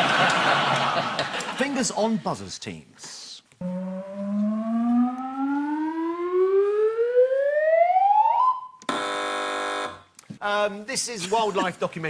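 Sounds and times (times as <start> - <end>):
game-show buzzer: 3.6 - 6.3, 8.9 - 10.0
rising electronic tone: 3.6 - 8.8.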